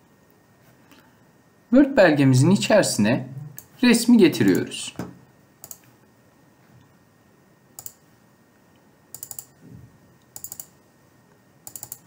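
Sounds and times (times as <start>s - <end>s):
computer mouse clicking: 5.6s - 5.9s, 7.8s - 8.0s, 9.1s - 9.6s, 10.3s - 10.8s, 11.6s - 12.0s.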